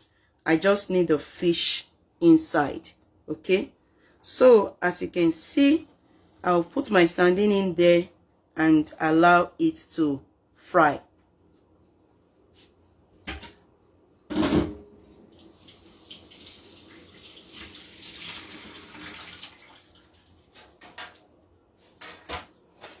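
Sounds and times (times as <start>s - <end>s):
water running from a tap: 15.3s - 20.6s.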